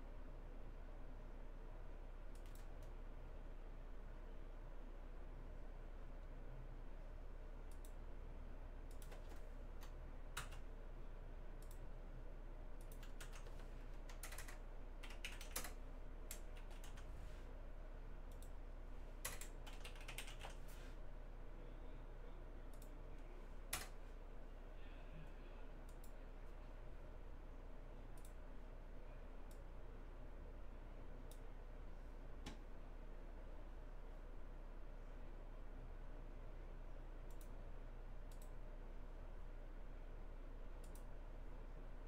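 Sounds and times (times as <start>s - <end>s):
low steady hum: 0.0s - 42.0s
keyboard typing clicks: 2.3s - 3.0s, 7.6s - 8.0s, 8.8s - 10.6s, 12.8s - 17.1s, 18.3s - 18.6s, 19.2s - 20.6s, 22.7s - 23.0s, 23.7s - 24.0s, 28.2s - 28.4s, 37.3s - 37.6s, 38.3s - 38.6s, 40.8s - 41.1s.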